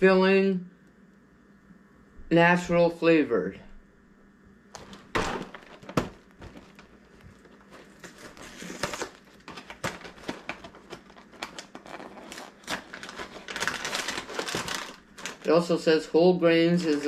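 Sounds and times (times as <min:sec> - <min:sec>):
cardboard box crinkling and knocking: 0:04.8 - 0:15.5.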